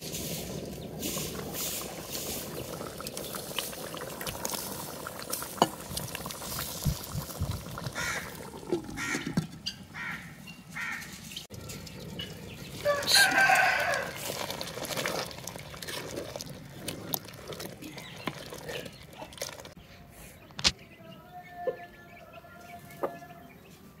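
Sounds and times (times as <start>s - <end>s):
liquid boiling in pot: 0.0s - 9.9s, 11.5s - 19.8s
crows cawing: 7.9s - 11.2s.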